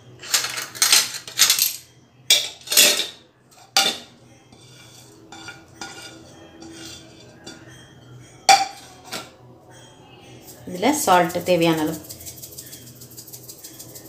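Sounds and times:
spoons clinking on dishes: 0.1s - 9.4s, 10.3s - 14.0s
herbs scraping and rustling: 10.5s - 14.0s.

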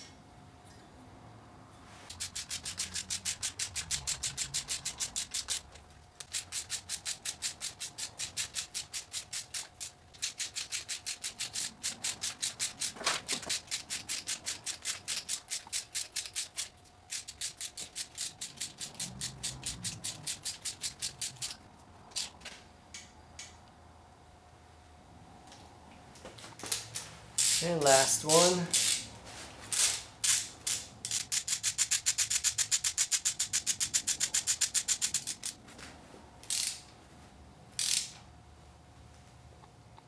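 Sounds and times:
socket ratchet clicking rapidly: 2.1s - 22.3s, 27.4s - 27.7s, 28.7s - 29.0s, 29.8s - 35.6s, 36.4s - 36.8s, 37.8s - 38.1s.

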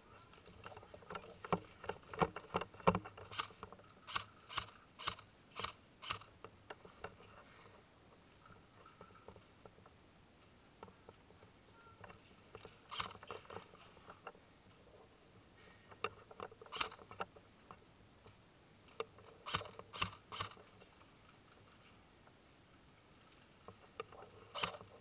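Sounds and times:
sharp clicks: 0.2s - 7.2s, 15.9s - 20.8s.

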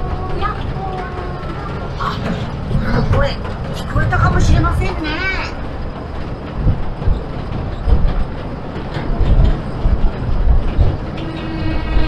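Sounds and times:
low clattering thumps: 0.0s - 12.0s
train wheels rumbling on rails: 0.0s - 12.0s.

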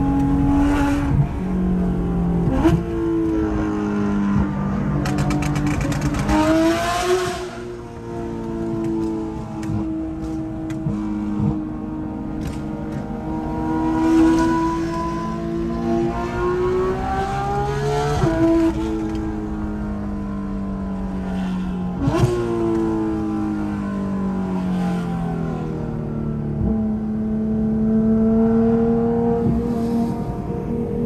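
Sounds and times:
car engine revving and shifting: 0.0s - 31.0s
gear shift crack: 5.0s - 6.6s.

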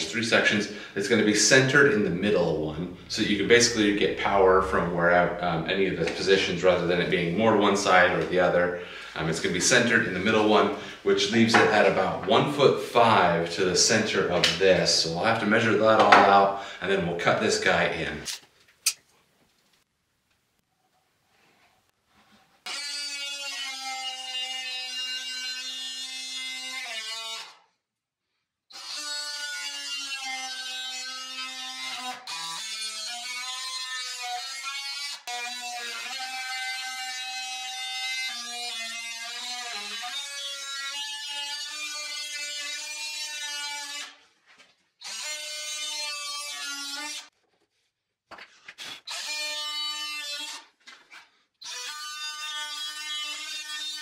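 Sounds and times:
multi-tool buzzing cutting wood: 22.6s - 27.7s, 28.7s - 44.2s, 45.0s - 47.3s, 48.8s - 54.0s.

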